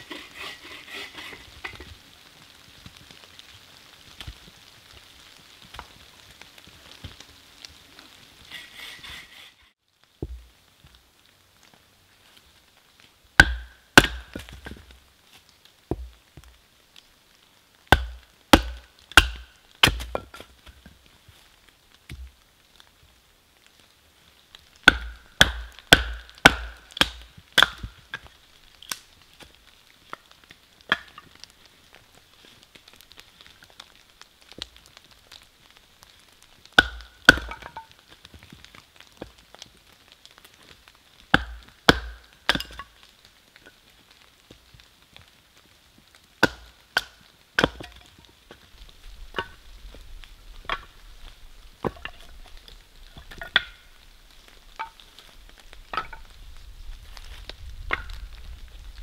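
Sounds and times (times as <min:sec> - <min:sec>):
wood chopping strikes: 0:13.4 - 0:14.8, 0:15.9 - 0:16.2, 0:17.9 - 0:20.5, 0:24.8 - 0:28.2, 0:36.8 - 0:37.8, 0:41.3 - 0:42.9, 0:46.4 - 0:48.0.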